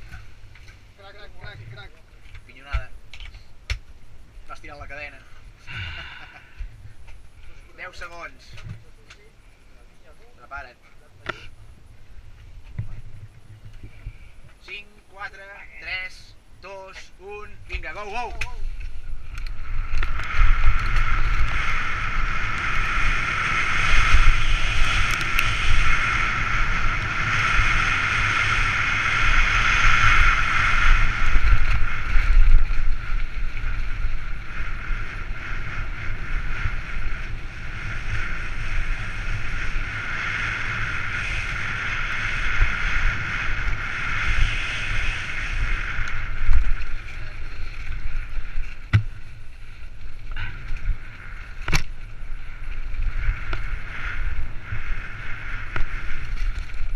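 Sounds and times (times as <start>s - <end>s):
high hiss: 13.3s - 56.4s
wind buffeting microphone: 17.1s - 56.9s
bike rattling over ground: 17.8s - 56.9s.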